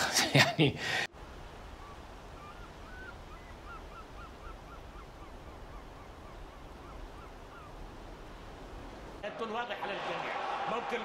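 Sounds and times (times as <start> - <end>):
bird chirping: 1.7 - 8.0.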